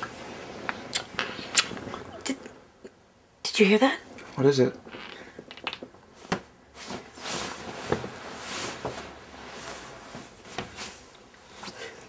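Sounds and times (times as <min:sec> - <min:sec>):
bedding rustling: 0:06.0 - 0:12.0.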